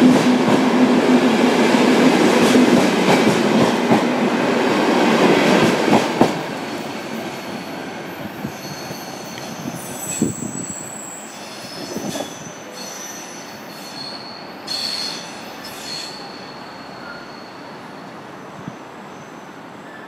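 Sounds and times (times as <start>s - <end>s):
train rolling rumble: 0.0s - 12.8s
train wheels squealing: 6.8s - 20.0s.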